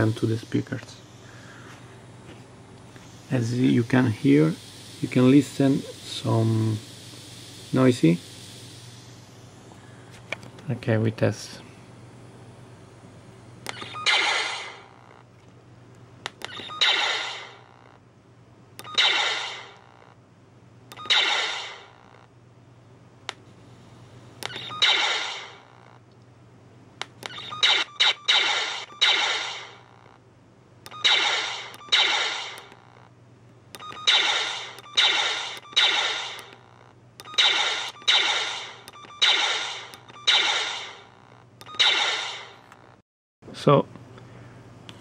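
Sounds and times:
steady electrical hum: 0:00.0 - 0:45.0
fire sound effect bursts: 0:13.9 - 0:14.9, 0:19.0 - 0:19.8, 0:21.0 - 0:21.9, 0:24.6 - 0:25.6, 0:27.6 - 0:29.8, 0:34.0 - 0:36.6, 0:37.4 - 0:41.1.

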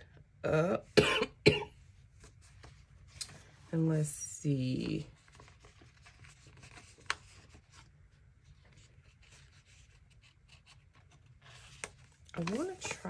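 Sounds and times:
paper rustling and handling: 0:04.8 - 0:13.0.

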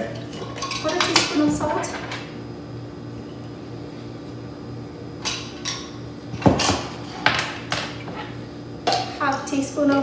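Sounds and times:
fan humming: 0:00.0 - 0:10.0
kitchenware scraping: 0:00.4 - 0:02.2.

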